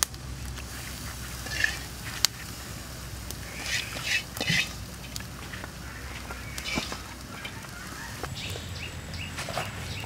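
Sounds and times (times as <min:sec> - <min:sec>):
poultry calling: 0:03.4 - 0:10.0.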